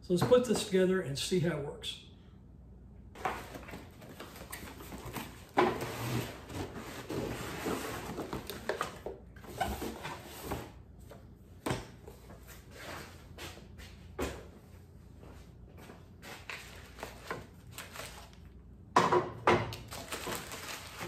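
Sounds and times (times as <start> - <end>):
cardboard and packing rustling: 3.2 - 14.4, 15.2 - 18.6, 19.8 - 21.0.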